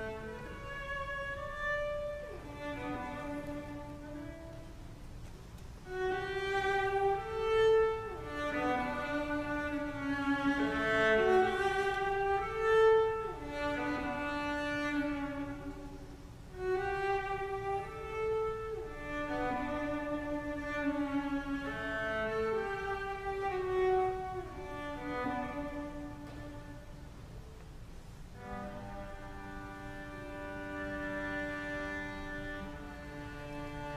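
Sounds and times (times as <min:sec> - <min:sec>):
solo cello bowed melody: 0:00.0 - 0:33.9.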